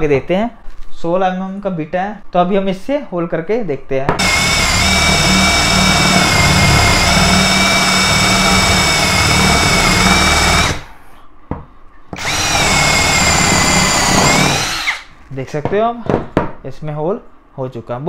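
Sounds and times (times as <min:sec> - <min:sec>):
cordless drill boring into wood: 0:04.2 - 0:10.9, 0:12.2 - 0:15.1.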